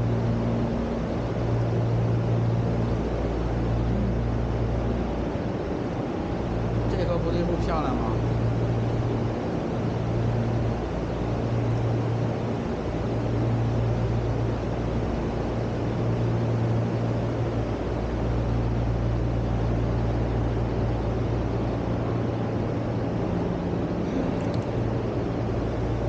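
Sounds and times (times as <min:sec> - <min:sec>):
low mechanical hum: 0:00.0 - 0:26.0.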